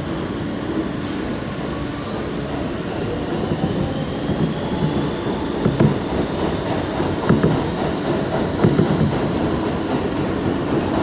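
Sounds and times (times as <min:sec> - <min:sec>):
train wheels rumbling on rails: 0:00.0 - 0:11.0
rail joint clacks: 0:03.0 - 0:11.0.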